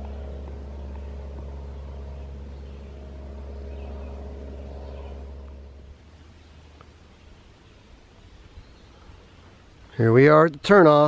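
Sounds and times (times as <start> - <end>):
distant engine drone: 0.0 - 9.8.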